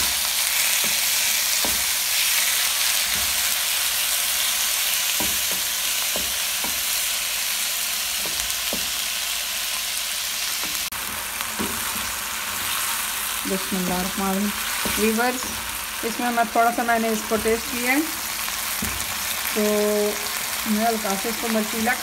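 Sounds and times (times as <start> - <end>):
spatula stirring and tapping pan: 0.0 - 3.8, 5.0 - 7.1, 8.1 - 9.1, 10.6 - 12.9, 13.8 - 15.9, 16.6 - 19.5
chicken sizzling in hot oil: 0.0 - 22.0.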